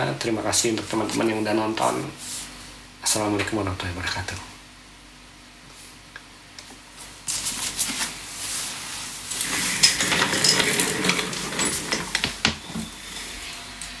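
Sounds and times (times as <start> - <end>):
rustling and clattering handling noise: 7.0 - 12.4.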